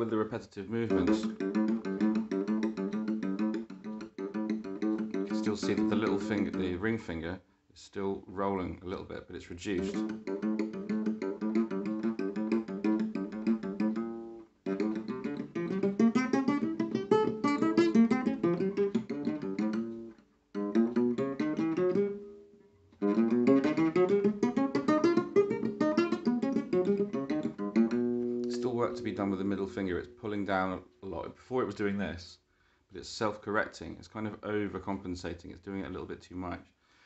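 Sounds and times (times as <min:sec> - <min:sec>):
classical guitar picked runs: 0:09.8 - 0:22.2, 0:23.0 - 0:29.6.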